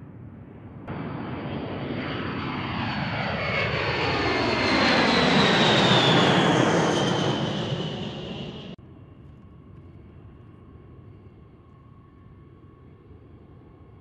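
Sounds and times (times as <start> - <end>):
jet plane taking off: 0.2 - 8.8.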